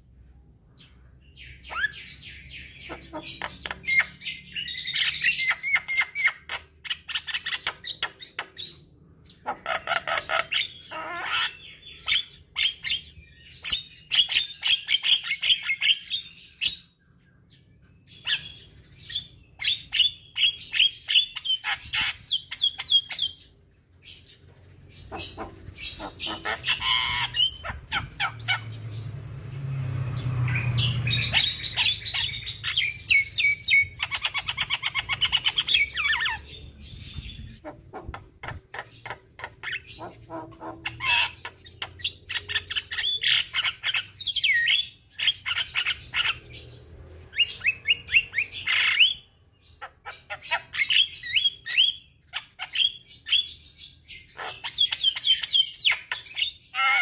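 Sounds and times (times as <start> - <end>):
bird singing chirps and whistles: 50.1 - 54.0.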